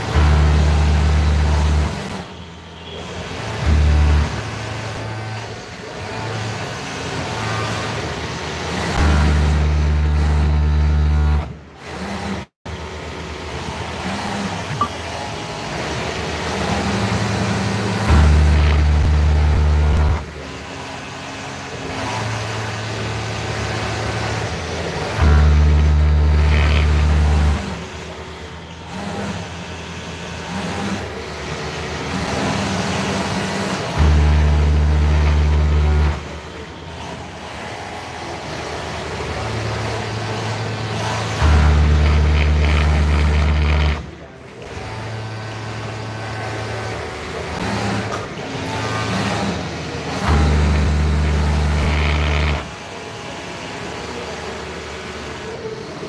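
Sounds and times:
workshop machine noise: 0.0s - 56.0s
electric machine motor running: 13.6s - 38.4s, 39.1s - 54.8s
electric motor hum: 50.5s - 52.7s.

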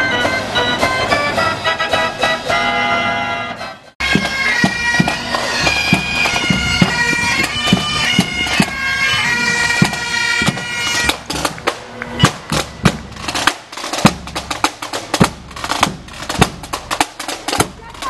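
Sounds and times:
bagpipes playing a march: 0.0s - 18.0s
band organ playing: 0.0s - 18.0s
drum beating: 4.0s - 18.0s.

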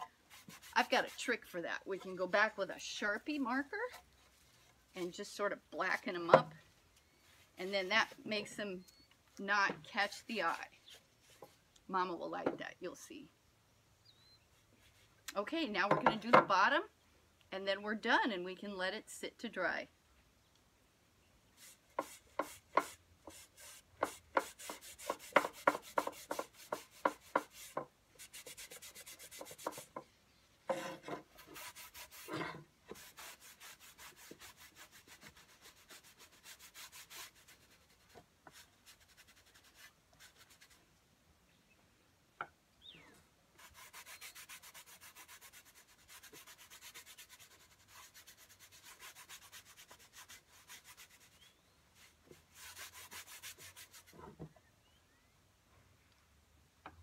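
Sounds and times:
cloth rag rubbing wood: 0.0s - 2.6s, 21.6s - 30.0s, 30.7s - 40.8s, 43.6s - 51.4s, 52.0s - 54.2s.

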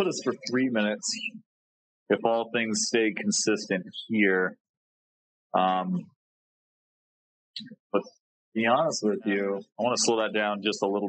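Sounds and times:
man's wordless vocal sound: 0.0s - 1.3s, 2.1s - 4.5s, 5.6s - 6.0s, 8.6s - 11.0s.

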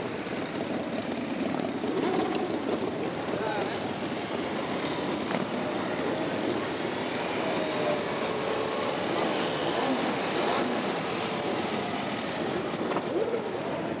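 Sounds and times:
mopeds and scooters riding past: 0.0s - 14.0s
moped revving sharply: 0.9s - 14.0s.

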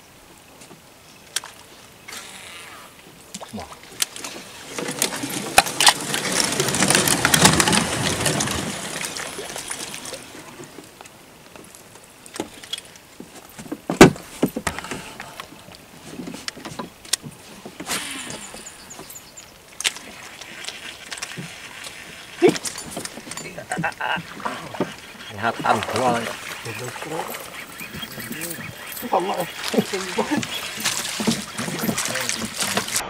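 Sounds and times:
fishing reel rustling and clicking: 18.3s - 24.1s, 24.8s - 33.0s.

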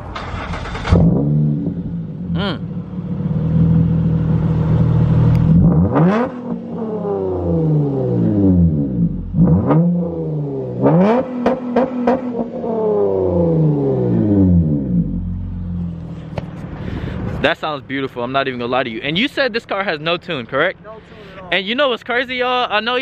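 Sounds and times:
car engine idling and revving: 0.0s - 23.0s.

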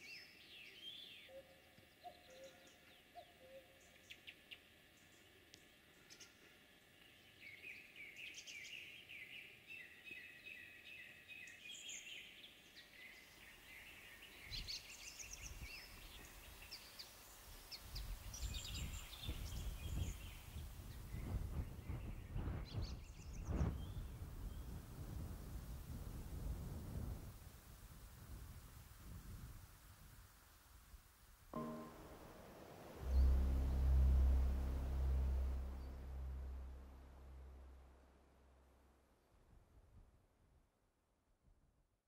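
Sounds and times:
wind buffeting microphone: 17.9s - 30.3s.

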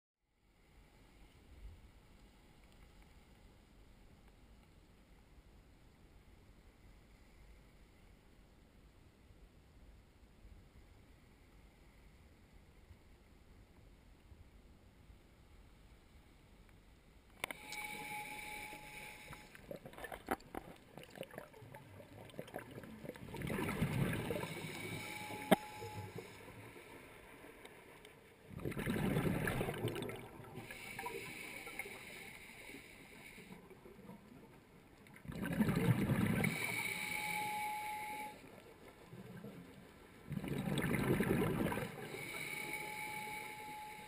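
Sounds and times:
regulator hiss: 17.6s - 19.7s, 30.6s - 33.6s, 36.4s - 38.4s, 42.1s - 44.0s
exhaled bubbles bursting underwater: 19.7s - 24.9s, 28.5s - 30.8s, 35.2s - 36.7s, 40.3s - 42.2s.

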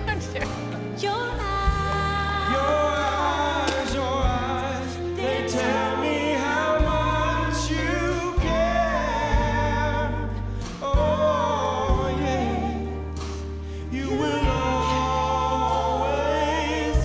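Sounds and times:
woman singing: 0.0s - 6.2s
bass: 0.0s - 17.0s
keyboard: 0.0s - 17.0s.

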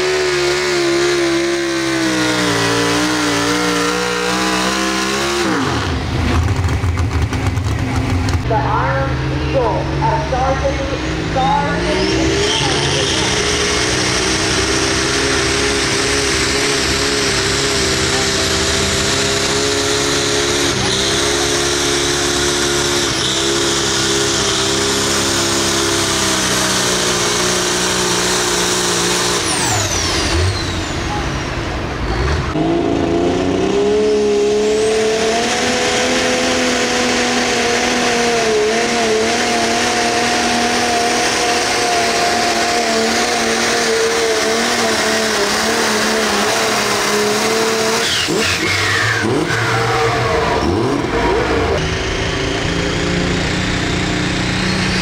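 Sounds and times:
tractor engine under load: 0.0s - 32.6s
tractor engine revving high: 0.0s - 55.0s.

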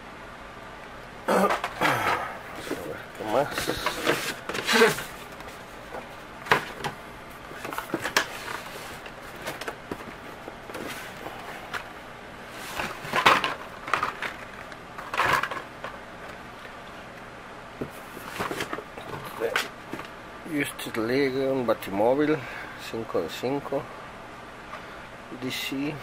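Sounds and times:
packaging rustling: 2.5s - 16.0s.

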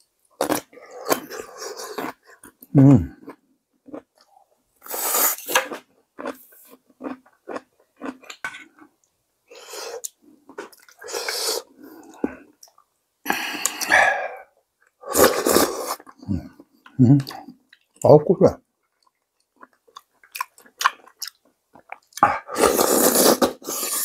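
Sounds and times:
wet chewing and mouth clicks: 4.9s - 9.2s, 15.9s - 18.1s, 18.8s - 22.5s
loud slurps: 15.1s - 16.0s, 22.5s - 24.0s.

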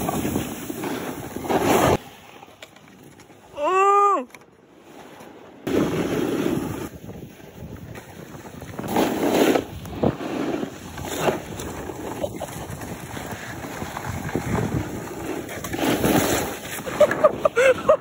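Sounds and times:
snowboard scraping over snow: 0.0s - 2.2s, 4.8s - 18.0s
wind on microphone: 6.0s - 17.0s.

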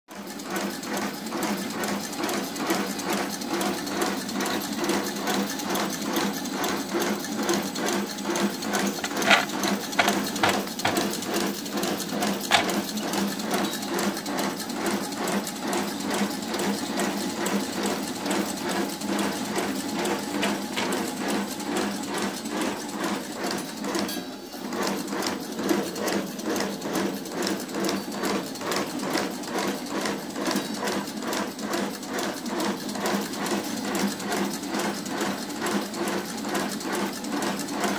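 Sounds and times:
machine clattering rhythmically: 0.1s - 37.9s
sharp knocks: 9.0s - 11.1s.

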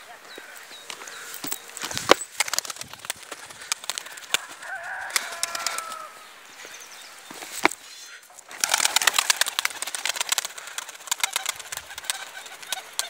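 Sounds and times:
pigeon wings clapping and flapping: 1.8s - 6.1s, 8.4s - 13.0s
rooster crowing: 4.3s - 6.4s.

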